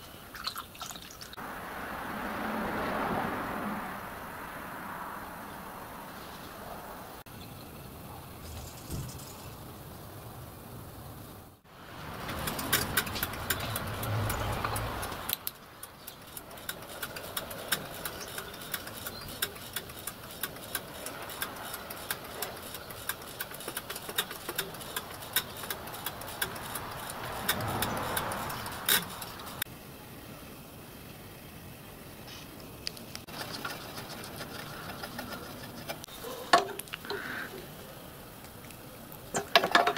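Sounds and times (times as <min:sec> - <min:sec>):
water pouring through a funnel: 0:00.3 - 0:01.4
hand pump clicking: 0:12.2 - 0:29.6, 0:33.3 - 0:37.4, 0:39.3 - 0:39.9.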